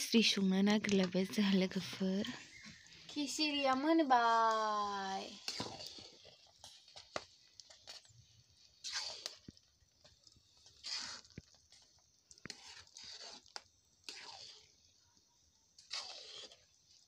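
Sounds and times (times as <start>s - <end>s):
metal spatula scraping pan: 2.2s - 8.1s, 8.8s - 9.4s, 10.6s - 14.9s, 15.8s - 17.0s.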